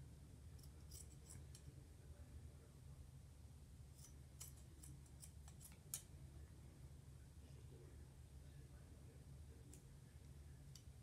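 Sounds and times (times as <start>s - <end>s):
low room hum: 0.0s - 11.0s
scissors snipping: 4.0s - 6.1s.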